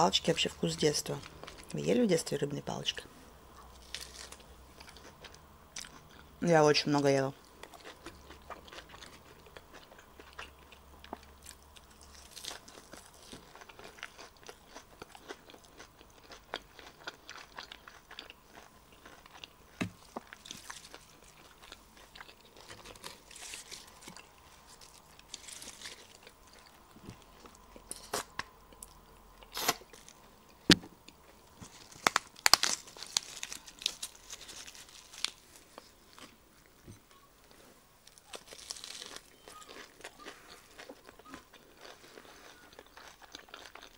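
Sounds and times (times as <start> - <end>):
lettuce rustling and crunching: 0.1 - 2.9, 3.6 - 43.9
wet chewing: 7.4 - 30.2, 38.1 - 43.9.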